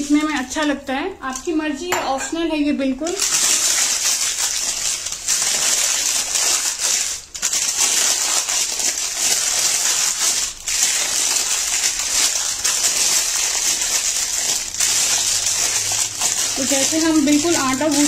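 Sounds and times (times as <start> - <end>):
paper crinkling and rustling: 3.0 - 18.0.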